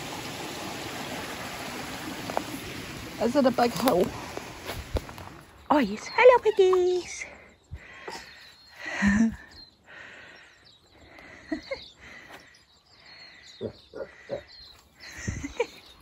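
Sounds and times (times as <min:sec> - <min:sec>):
footsteps through long grass: 0:03.6 - 0:05.7.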